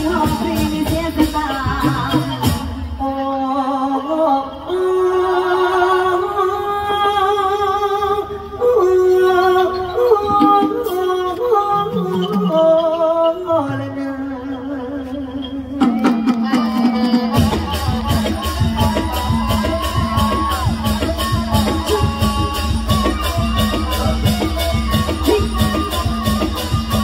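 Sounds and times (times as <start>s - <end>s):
person singing long ornamented notes: 0.0s - 27.0s
quiet band accompaniment: 0.0s - 27.0s
percussion strokes: 9.8s - 27.0s.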